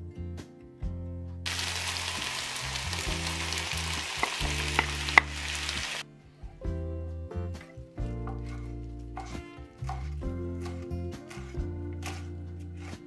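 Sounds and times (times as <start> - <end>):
vegetables sizzling in a pan: 1.5 - 6.0.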